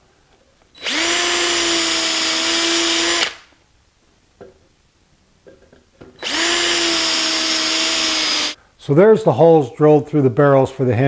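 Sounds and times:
cordless drill boring wood: 0.8s - 3.5s, 6.2s - 8.6s.

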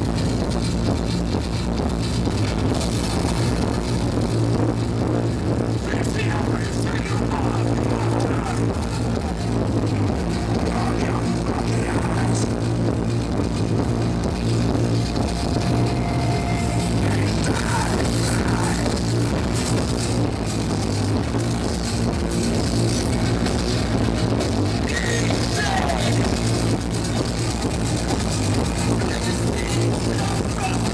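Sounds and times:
live metal band playing: 4.9s - 20.6s.

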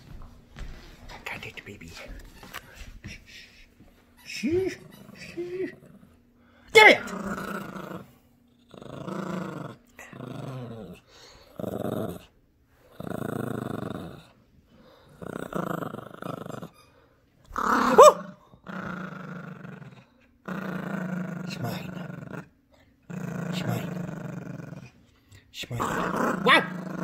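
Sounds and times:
small dog growling: 4.4s - 6.2s, 6.8s - 16.8s, 17.4s - 25.0s, 25.7s - 27.0s.

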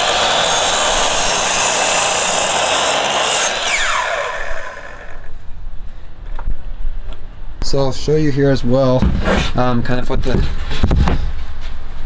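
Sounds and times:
saw blade cutting wood: 0.0s - 5.3s
saw motor whine: 0.0s - 5.3s.

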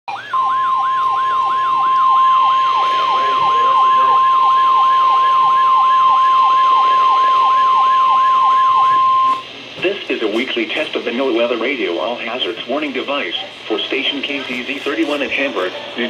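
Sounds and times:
alert siren sweeping downward: 0.1s - 9.4s
steady warning alarm tone: 0.1s - 9.5s.

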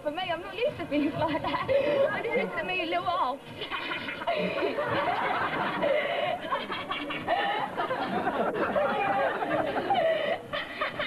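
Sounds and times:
audience laughing: 3.6s - 11.0s.

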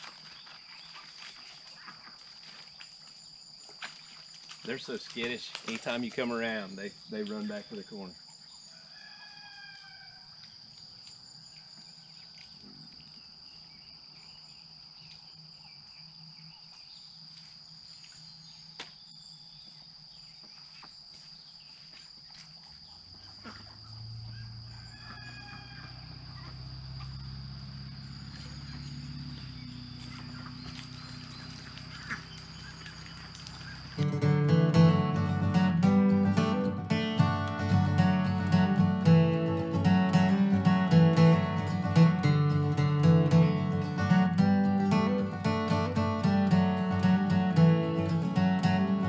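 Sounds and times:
high-pitched insect drone: 23.7s - 34.1s
ducks calling: 28.3s - 49.0s.

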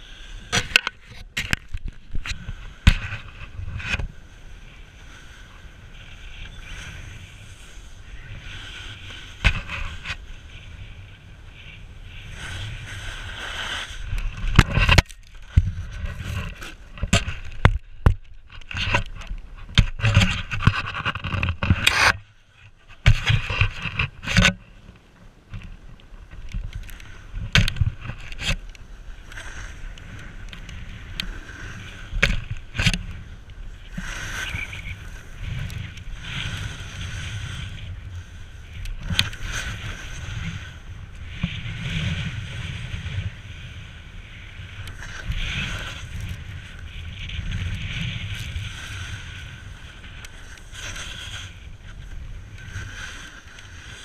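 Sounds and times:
wind on microphone: 0.0s - 54.0s
snowboard scraping on snow: 2.0s - 17.5s, 33.1s - 54.0s.

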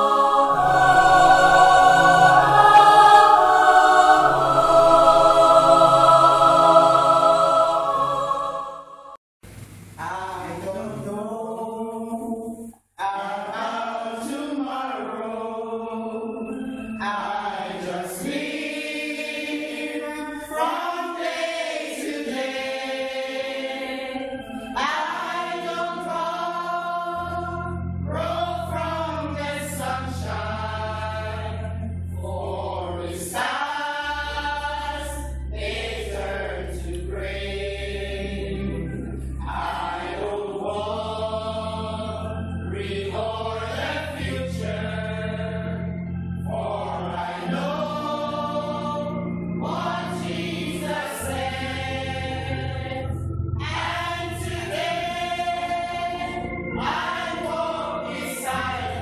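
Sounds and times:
loud music: 0.0s - 9.0s
gospel choir singing: 0.0s - 9.2s, 10.0s - 59.0s.

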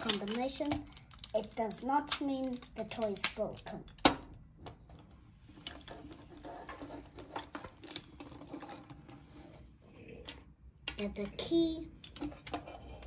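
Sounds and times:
plastic toy parts clicking: 0.0s - 4.4s.

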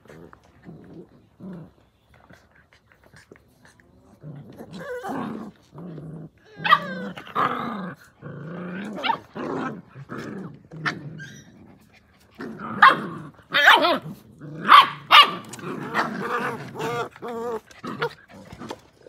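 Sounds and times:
puppies growling: 0.0s - 19.0s.

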